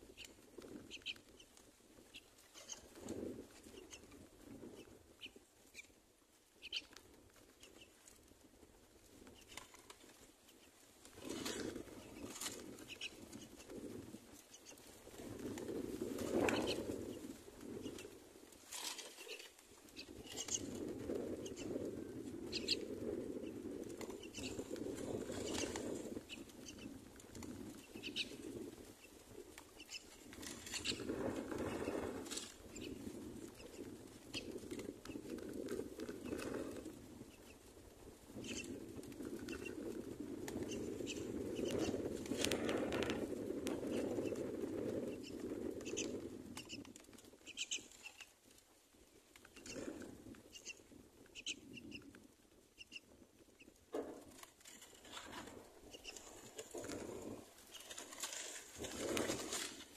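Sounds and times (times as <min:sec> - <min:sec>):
sharp little ticks and scratches: 0:09.2 - 0:37.7, 0:52.8 - 0:59.9
chicks rustling in a nest: 0:10.6 - 0:37.8, 0:38.4 - 0:48.4, 0:52.8 - 0:59.9.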